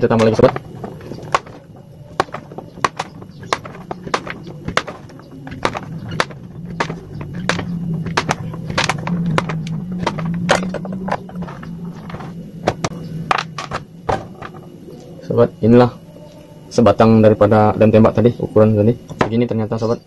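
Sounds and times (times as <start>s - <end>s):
pieces dropping on wood: 0.0s - 14.7s.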